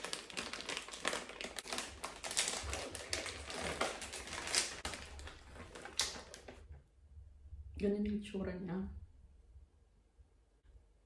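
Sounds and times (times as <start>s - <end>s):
plastic snack bag crinkling: 0.0s - 6.7s.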